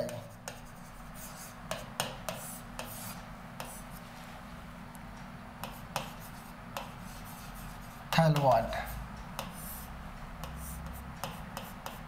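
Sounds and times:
pen scratching on board: 0.0s - 3.9s, 5.6s - 8.0s, 9.4s - 12.0s
steady low hum: 0.0s - 12.0s.

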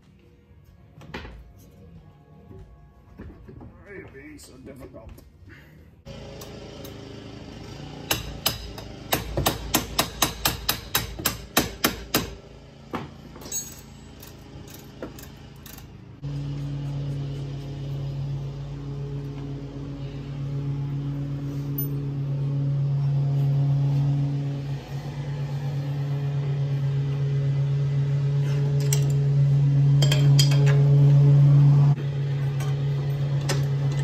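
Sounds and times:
low machine hum: 12.3s - 34.0s
metallic clinks of hand tools: 13.4s - 14.8s.

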